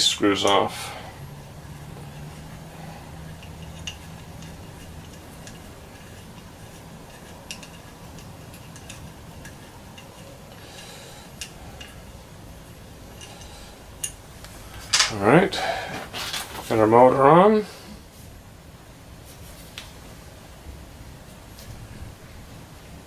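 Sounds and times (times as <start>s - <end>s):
small screws clicking on metal: 3.3s - 12.1s.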